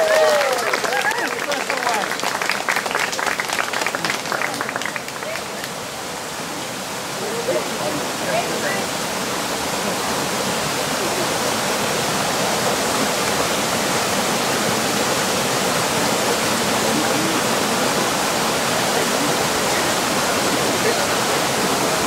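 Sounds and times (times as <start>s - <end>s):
creek rushing over rocks: 0.0s - 22.0s.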